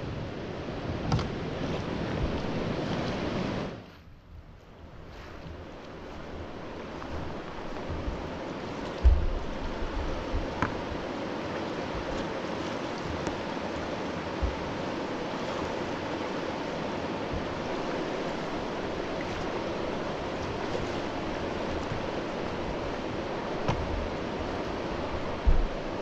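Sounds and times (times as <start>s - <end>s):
river rushing: 0.0s - 3.8s, 5.1s - 26.0s
low thumps: 9.0s - 10.8s, 25.3s - 25.9s.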